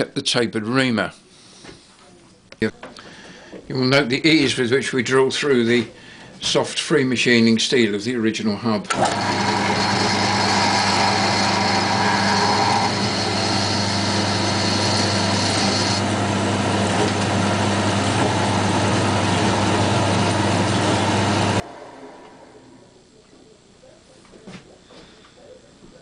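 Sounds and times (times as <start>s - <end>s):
drill cutting steel: 8.9s - 21.6s
motor hum: 8.9s - 22.8s.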